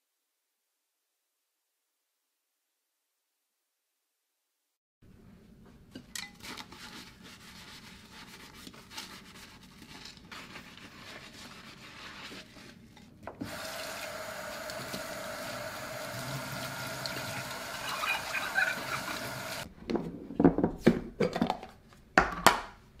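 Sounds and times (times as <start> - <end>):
sponge scrubbing a plate: 6.4 - 19.7
tap water running onto dishes: 13.3 - 19.7.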